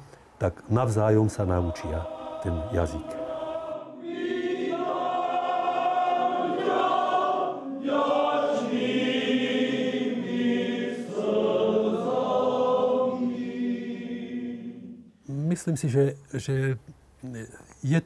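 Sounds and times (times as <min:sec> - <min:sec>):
choir singing: 0:00.8 - 0:15.2.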